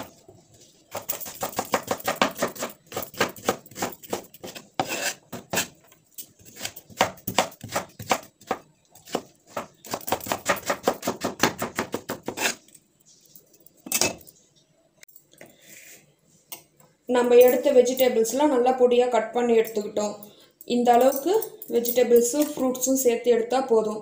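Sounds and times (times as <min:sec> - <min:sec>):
knife chopping on wooden board: 0:00.9 - 0:05.7, 0:06.6 - 0:12.6.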